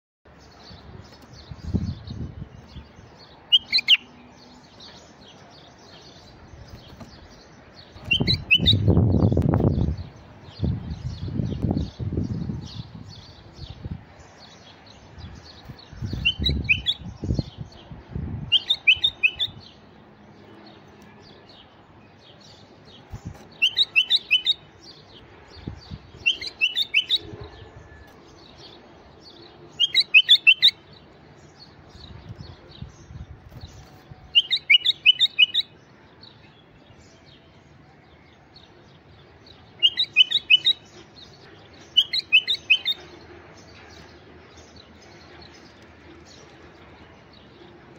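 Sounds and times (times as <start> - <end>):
bird singing whistled notes: 0.4 - 5.0, 5.9 - 14.6, 15.6 - 17.9, 18.5 - 19.8, 23.3 - 38.4, 39.4 - 45.8.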